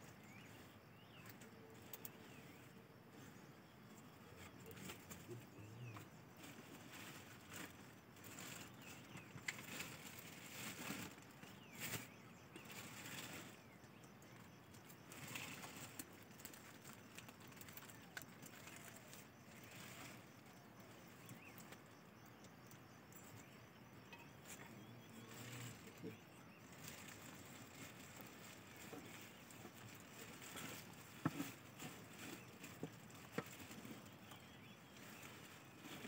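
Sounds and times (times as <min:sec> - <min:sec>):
faint rustling and clicks: 0:00.1 - 0:36.0.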